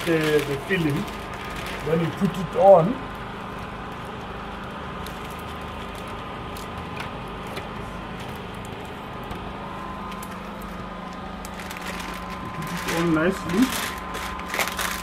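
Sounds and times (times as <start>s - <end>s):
plastic sheet crinkling: 0.0s - 4.1s, 10.0s - 15.0s
steady background hum: 0.0s - 15.0s.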